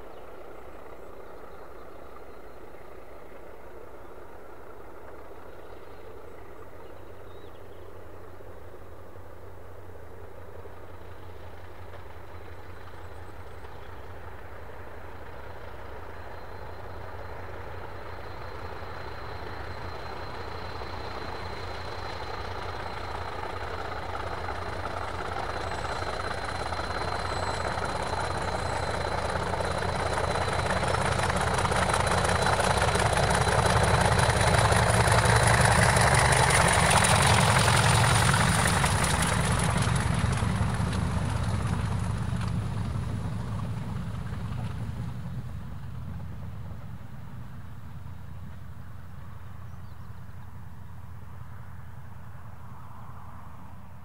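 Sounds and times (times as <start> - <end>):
diesel locomotive engines rumbling: 0.0 - 54.0.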